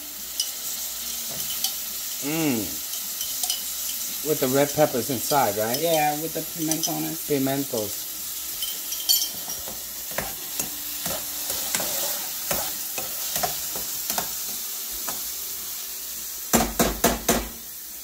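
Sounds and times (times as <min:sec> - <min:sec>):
vegetables sizzling in oil: 0:00.0 - 0:18.0
metal spoon scraping a pot: 0:08.6 - 0:14.2.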